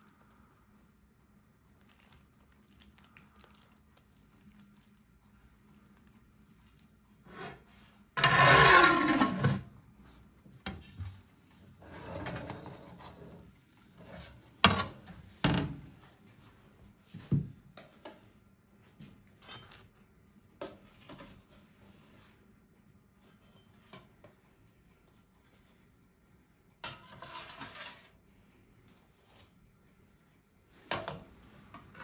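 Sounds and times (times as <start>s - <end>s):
metal tray scraping and clanking: 7.2s - 9.7s, 11.8s - 15.0s, 26.8s - 28.2s.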